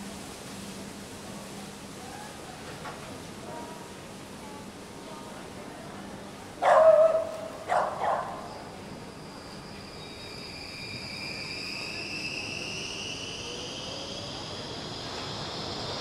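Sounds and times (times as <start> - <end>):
dog barking: 6.6 - 8.4.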